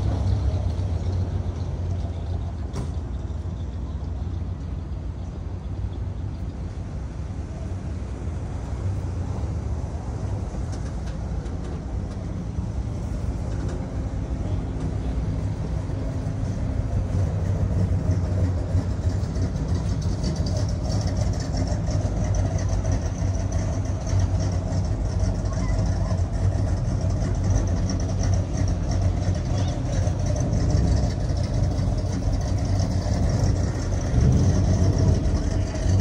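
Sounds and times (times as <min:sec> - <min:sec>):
car engine running: 0:00.0 - 0:36.0.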